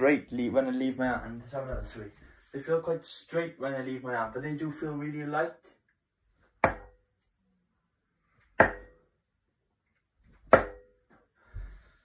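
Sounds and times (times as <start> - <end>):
darts striking dartboard: 6.6 - 7.0, 8.6 - 9.0, 10.4 - 10.9.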